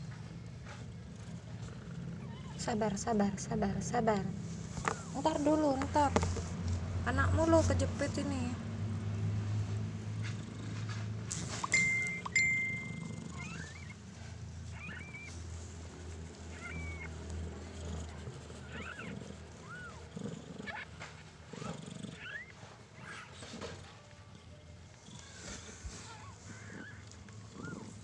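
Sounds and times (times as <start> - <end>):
low steady rumble: 0.0 - 28.0
kittens mewing: 11.5 - 15.4, 16.4 - 23.6, 25.2 - 28.0.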